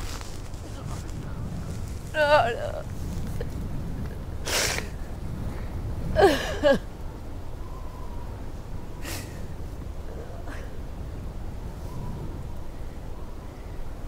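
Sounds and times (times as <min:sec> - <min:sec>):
wind rumble: 0:00.0 - 0:14.0
woman crying: 0:02.2 - 0:02.8, 0:06.2 - 0:06.8.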